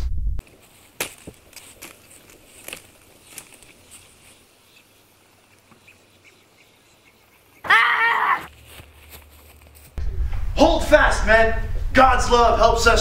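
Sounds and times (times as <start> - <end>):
faint outdoor background: 0.3 - 13.0
wavering cry: 5.8 - 8.5.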